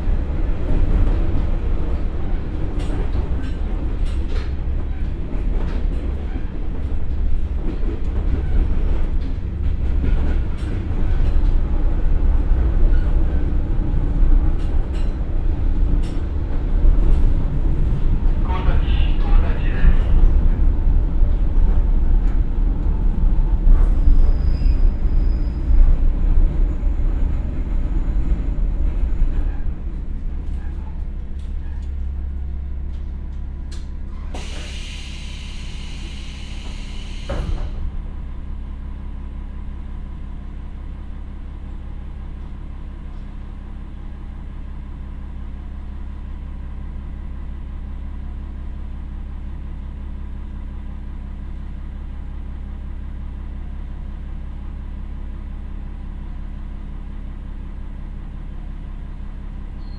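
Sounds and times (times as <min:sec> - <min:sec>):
railcar wheels rumbling: 0:00.0 - 0:59.8
compressed air hiss: 0:34.4 - 0:37.4.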